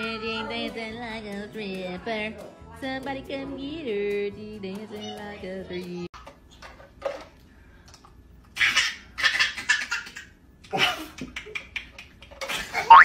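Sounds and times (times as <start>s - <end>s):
baby laughing: 8.5s - 13.0s.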